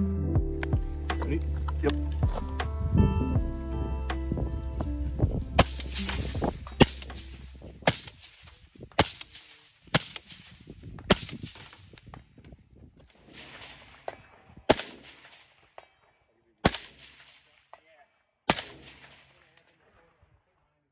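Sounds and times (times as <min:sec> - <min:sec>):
suppressed rifle shots: 0:05.6 - 0:12.1, 0:13.1 - 0:15.8, 0:16.6 - 0:17.8, 0:18.5 - 0:19.9.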